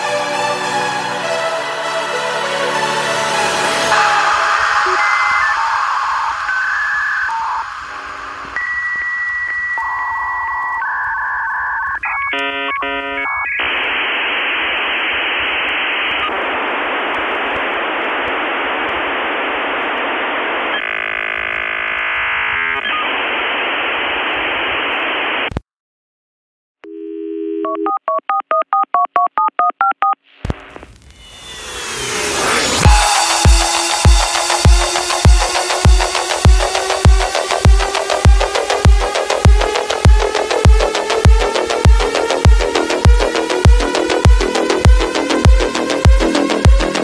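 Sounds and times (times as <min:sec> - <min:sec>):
dial-up connection hiss: 0:03.7 - 0:25.6, 0:30.3 - 0:47.0
telephone line tone: 0:03.9 - 0:13.9, 0:26.8 - 0:30.2
rapid two-pitch beeps: 0:04.7 - 0:08.0
touch-tone dialing: 0:08.5 - 0:13.6, 0:27.6 - 0:30.2.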